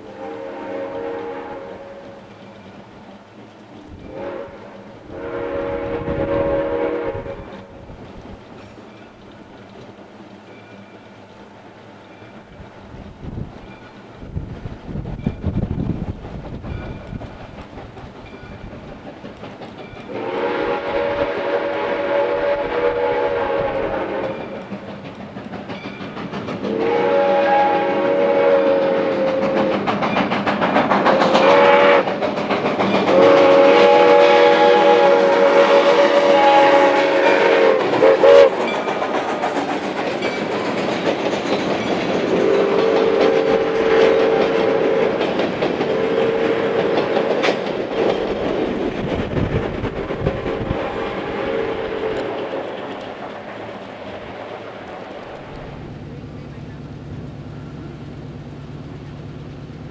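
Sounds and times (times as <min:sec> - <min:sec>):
steam whistle blasts: 0:00.0 - 0:02.2, 0:04.0 - 0:07.8, 0:20.1 - 0:24.6, 0:26.7 - 0:29.9, 0:31.2 - 0:32.1, 0:33.1 - 0:38.7, 0:42.3 - 0:45.2, 0:45.8 - 0:47.4, 0:50.5 - 0:52.7
train rumble: 0:00.0 - 0:59.9.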